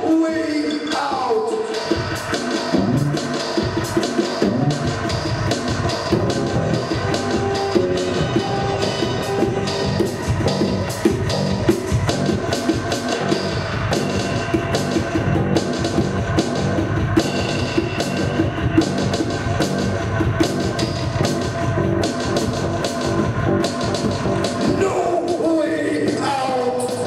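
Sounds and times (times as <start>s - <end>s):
drum kit beat: 0.0s - 27.0s
instrumental rock music: 0.8s - 27.0s.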